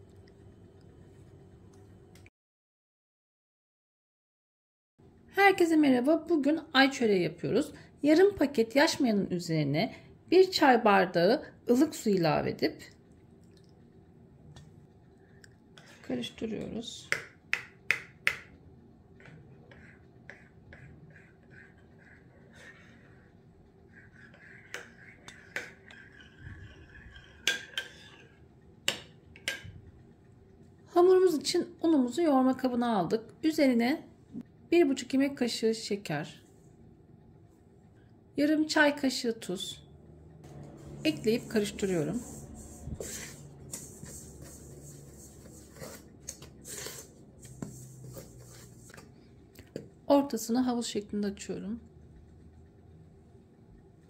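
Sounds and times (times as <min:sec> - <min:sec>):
spoon scraping metal bowl: 0:19.2 - 0:28.5, 0:40.5 - 0:49.0.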